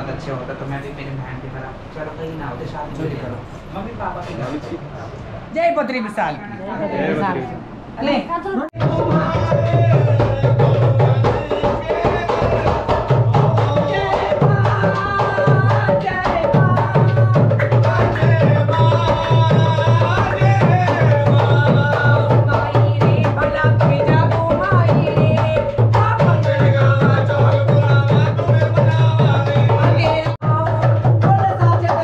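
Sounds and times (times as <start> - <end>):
hand drum folk rhythm: 8.8 - 32.0.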